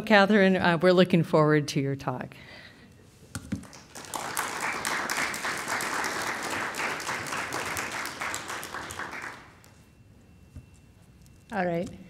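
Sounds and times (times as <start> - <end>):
audience applauding: 3.6 - 9.7.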